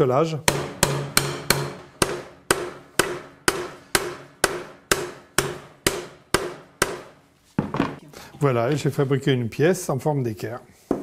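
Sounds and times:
hammer striking steel bar: 0:00.5 - 0:07.2.

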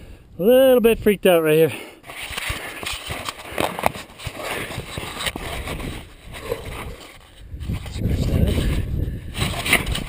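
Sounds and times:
hand handling camera: 0:02.0 - 0:10.0.

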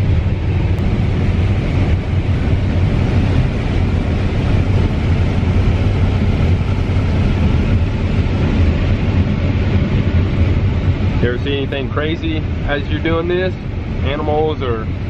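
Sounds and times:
combine harvester drone: 0:00.0 - 0:15.0.

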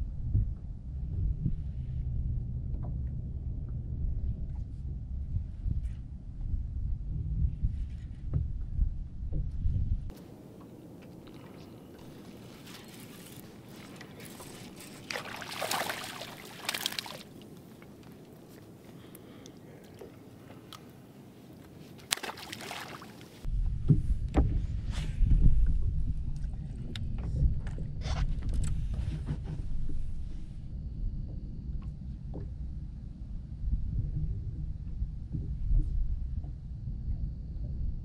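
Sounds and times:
wind rumble on microphone: 0:00.0 - 0:15.1, 0:23.4 - 0:38.0
water lapping against boat hull: 0:10.4 - 0:24.6.

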